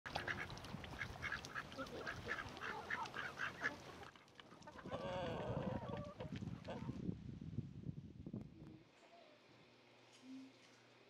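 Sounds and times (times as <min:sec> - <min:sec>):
ducks quacking: 0:00.1 - 0:06.9.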